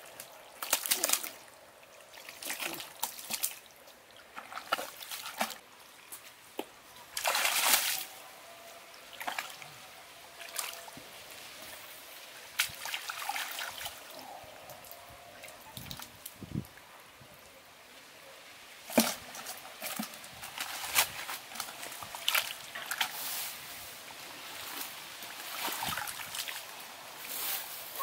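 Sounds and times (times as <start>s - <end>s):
muddy water splashing: 0.0s - 6.0s, 7.0s - 8.2s, 9.1s - 9.6s, 12.4s - 14.2s, 18.8s - 23.4s, 24.0s - 27.3s.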